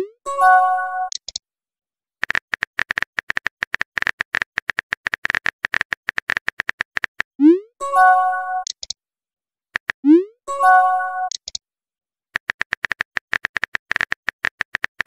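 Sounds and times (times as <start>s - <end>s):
phone keyboard typing clicks: 1.1s - 1.4s, 2.2s - 7.3s, 8.6s - 9.0s, 11.3s - 11.6s, 12.4s - 15.0s
notification chime: 7.8s - 8.7s, 10.5s - 11.3s.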